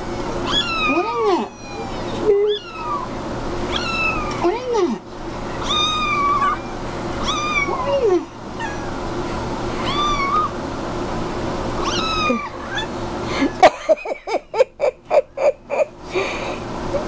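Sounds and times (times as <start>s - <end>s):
cat meowing: 0.4s - 3.1s, 3.7s - 4.4s, 5.6s - 8.0s, 8.6s - 9.0s, 9.8s - 10.5s, 11.8s - 12.9s.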